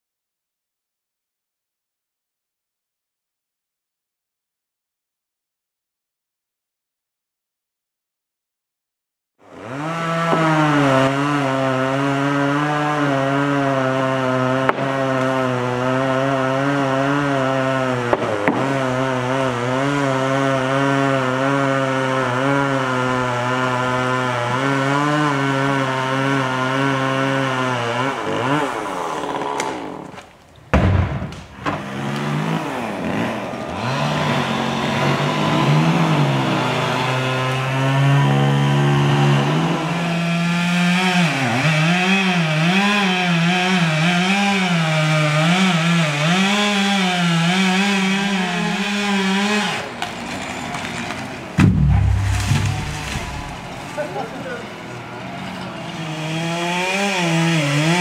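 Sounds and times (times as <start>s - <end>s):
chainsaw engine running: 9.4s - 30.2s, 31.7s - 55.0s, 56.0s - 58.0s.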